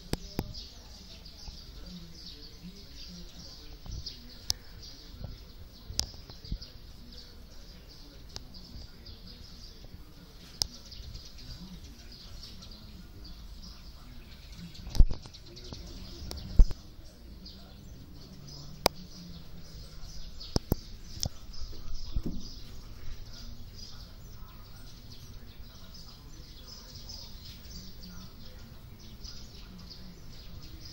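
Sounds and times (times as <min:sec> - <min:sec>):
birds chirping: 0:00.0 - 0:30.9
sharp clicks: 0:20.4 - 0:21.4
loud thumps: 0:20.5 - 0:23.2.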